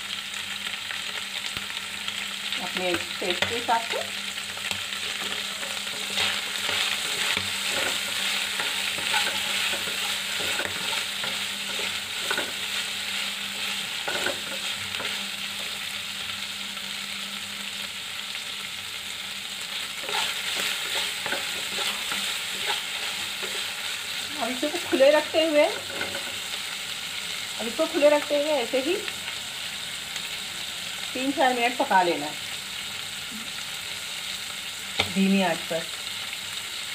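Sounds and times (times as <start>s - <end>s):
liver sizzling in oil: 0.0s - 36.9s
wooden spatula scraping pan: 5.0s - 12.9s, 20.0s - 25.1s.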